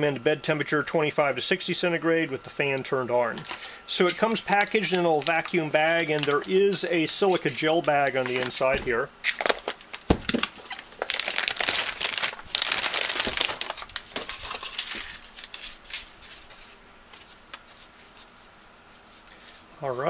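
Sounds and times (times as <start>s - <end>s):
plastic bag crinkling: 3.3s - 18.3s.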